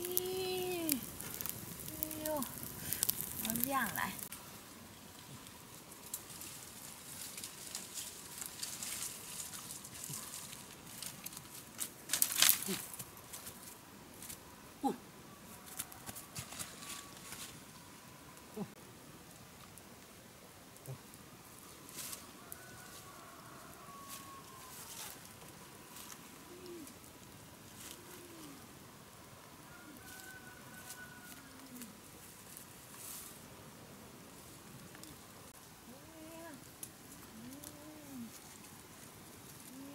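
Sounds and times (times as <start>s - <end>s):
dry leaves and twigs crackling: 0.0s - 14.6s, 15.4s - 18.6s, 19.3s - 33.6s, 34.2s - 39.9s
faint rustles and clicks: 5.1s - 14.5s, 15.5s - 17.8s, 20.8s - 28.6s, 29.9s - 33.5s, 34.3s - 39.9s
dove cooing: 26.3s - 27.1s, 27.8s - 28.7s.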